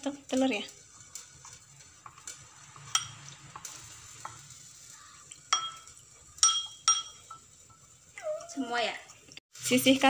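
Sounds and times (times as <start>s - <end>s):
spoon stirring and scraping bowl: 0.4s - 4.4s, 5.3s - 8.1s
spoon clinking against bowl: 2.9s - 3.2s, 5.5s - 7.9s.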